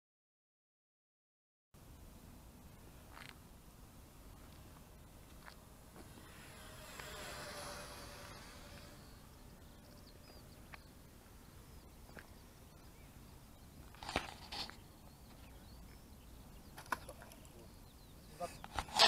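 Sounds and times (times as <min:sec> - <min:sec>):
model plane motor hum: 0:05.3 - 0:11.1
faint bird chirps: 0:06.2 - 0:18.8.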